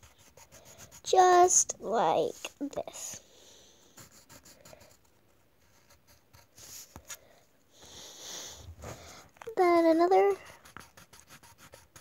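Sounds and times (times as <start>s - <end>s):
crayon scratching on paper: 0.0s - 3.2s, 3.8s - 7.0s, 9.6s - 12.0s.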